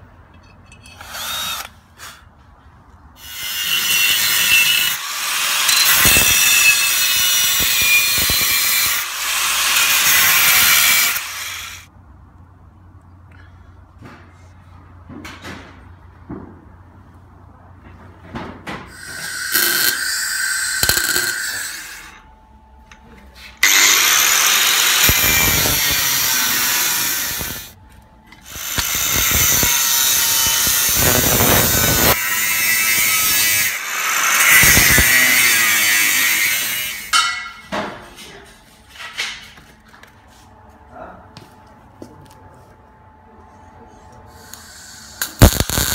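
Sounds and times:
power tool whining on steel: 18.9 - 22.3, 23.6 - 27.8, 28.4 - 37.1.

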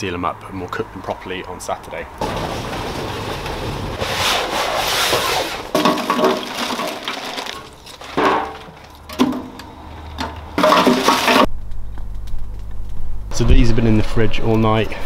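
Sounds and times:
charcoal poured into metal hopper: 2.2 - 8.9, 10.6 - 11.5
wood chunks knocking: 5.7 - 11.6.

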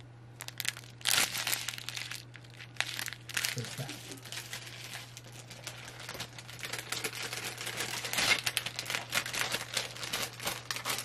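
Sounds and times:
plastic packaging crinkling: 0.4 - 11.0.

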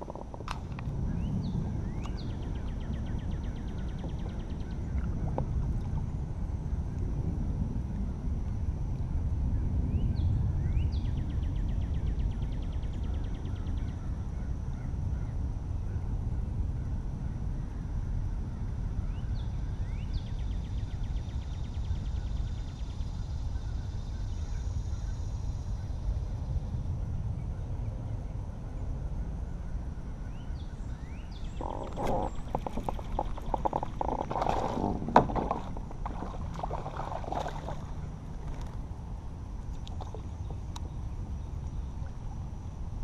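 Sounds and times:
steady low rumble: 0.0 - 43.0
fish splashing at surface: 31.6 - 38.7.

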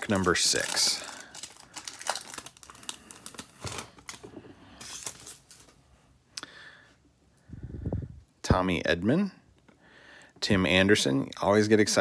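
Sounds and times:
foil wrapper crinkling and tearing: 0.0 - 5.8.

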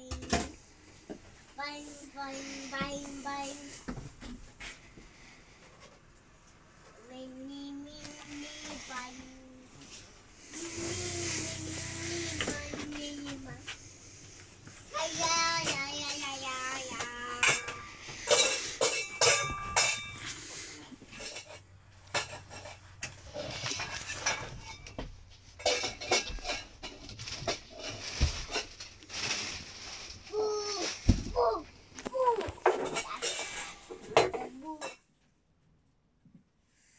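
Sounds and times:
cushions and lid rattling: 9.8 - 31.4
child singing a held note: 10.5 - 13.7.

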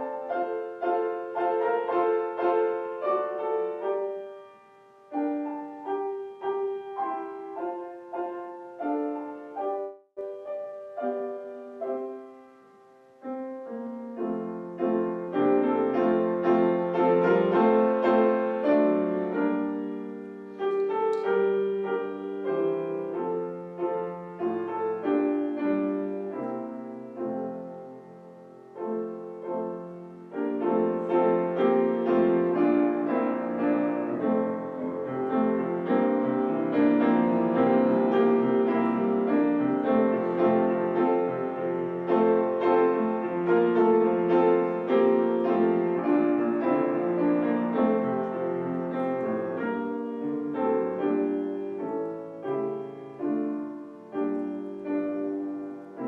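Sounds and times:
slow solo piano: 0.0 - 56.0.

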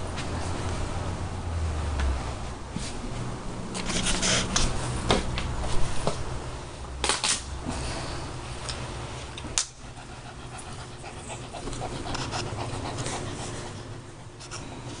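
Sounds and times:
dog panting: 9.8 - 14.3.

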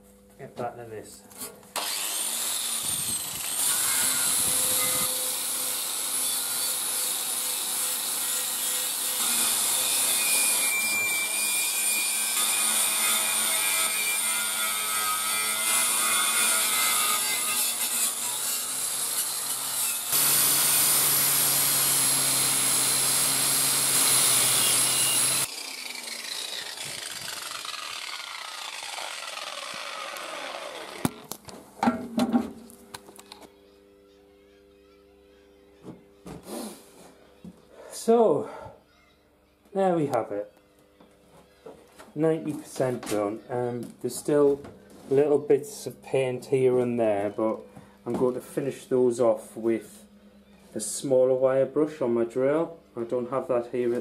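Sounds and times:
angle grinder wire brush on metal: 1.4 - 31.1.

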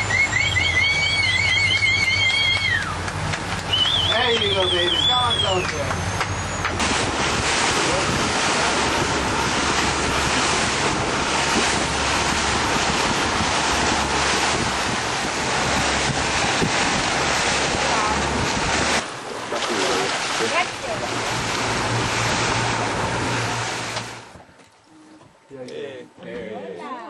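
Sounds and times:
sea water: 0.0 - 26.8
wind buffeting microphone: 6.6 - 24.6.

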